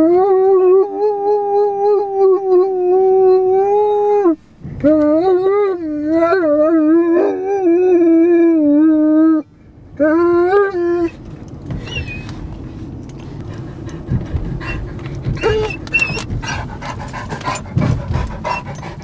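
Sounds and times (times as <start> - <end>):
dog howling: 0.0 - 4.4, 5.0 - 9.4, 14.6 - 16.8.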